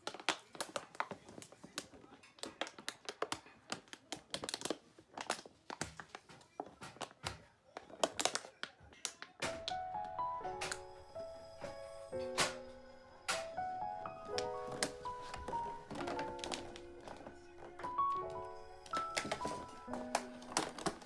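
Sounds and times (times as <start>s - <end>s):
plastic bottle crinkling: 0.0s - 9.8s, 14.3s - 21.0s.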